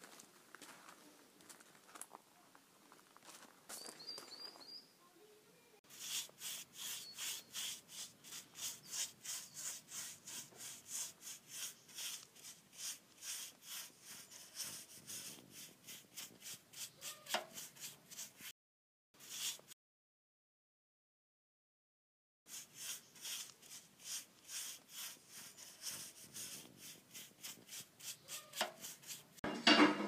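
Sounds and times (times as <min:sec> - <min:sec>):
paintbrush stroking metal: 0:05.9 - 0:18.5, 0:19.2 - 0:19.7, 0:22.5 - 0:29.4.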